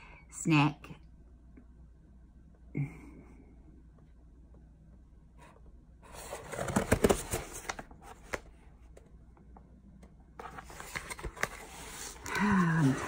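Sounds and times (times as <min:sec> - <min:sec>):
cardboard and paper rustling: 0:06.0 - 0:09.0, 0:10.4 - 0:13.0.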